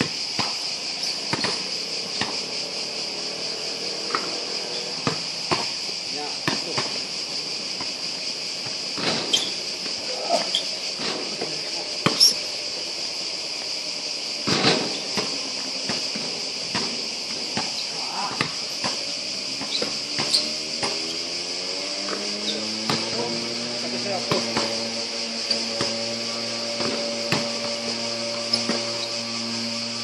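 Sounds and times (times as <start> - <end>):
insects chirring: 0.0 - 30.0
basketball bouncing: 1.2 - 2.5, 5.0 - 5.8, 6.4 - 7.0, 12.0 - 12.4, 14.5 - 21.2, 22.8 - 23.2, 26.8 - 27.8
low hum rising in pitch: 19.3 - 30.0.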